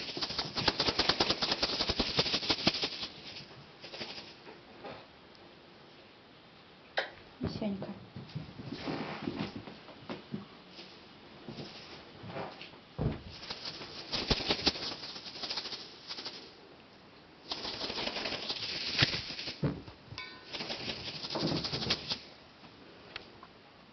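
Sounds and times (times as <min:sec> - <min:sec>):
kittens scrabbling and rustling: 0:00.0 - 0:04.5, 0:10.7 - 0:16.4, 0:17.5 - 0:19.9, 0:20.5 - 0:22.3.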